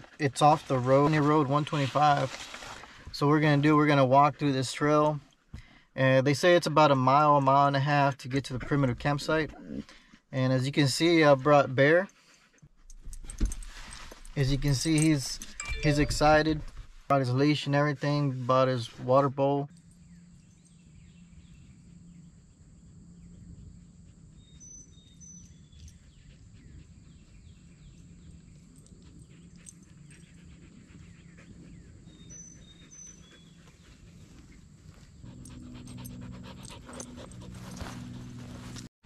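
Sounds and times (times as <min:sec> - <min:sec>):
dog panting: 0:12.0 - 0:13.0, 0:25.5 - 0:38.7
high two-note chirps: 0:15.6 - 0:16.6
faint footsteps: 0:33.6 - 0:38.9.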